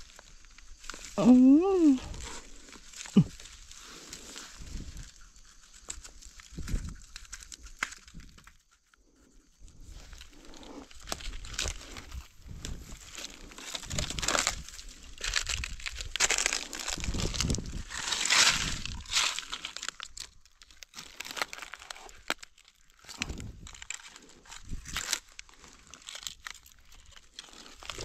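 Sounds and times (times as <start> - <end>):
dry leaves rustling: 9.7 - 28.0.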